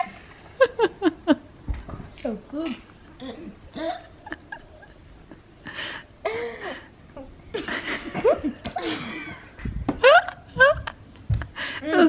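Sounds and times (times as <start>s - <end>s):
people laughing: 3.8s - 6.0s, 7.5s - 12.0s.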